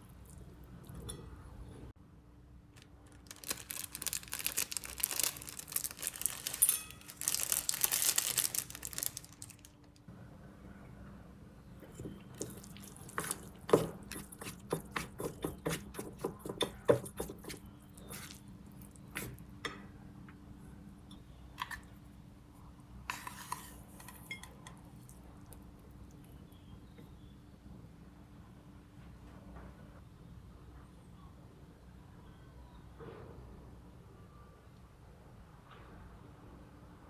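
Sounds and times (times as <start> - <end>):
plastic sachet tearing and crinkling: 2.8 - 10.0
dried flakes shaken out: 3.1 - 9.7.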